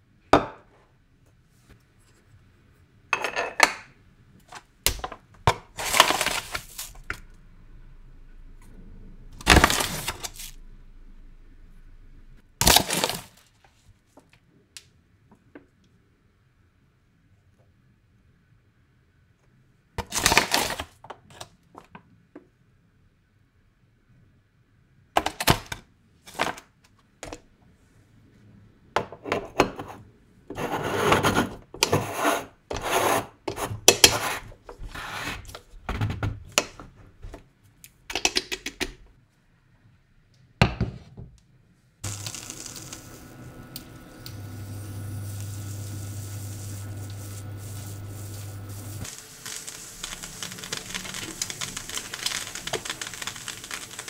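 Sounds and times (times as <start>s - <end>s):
steady hiss with low hum: 3.9s - 20.0s, 41.4s - 54.0s
coffee brewing crackle: 5.7s - 7.4s, 9.4s - 10.6s, 42.0s - 54.0s
coffee scraped in metal filter: 45.3s - 54.0s.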